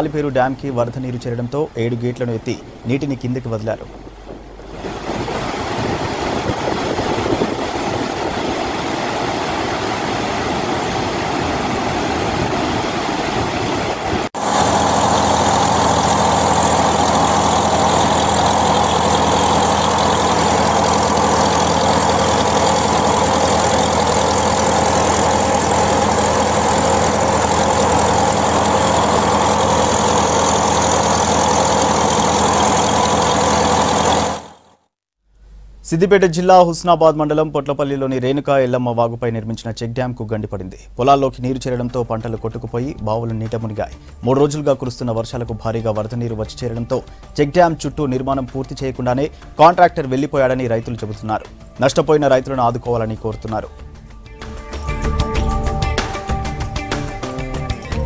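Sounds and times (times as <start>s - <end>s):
boat engine running: 0.0s - 34.9s
water roaring through sluice gates: 1.8s - 34.6s.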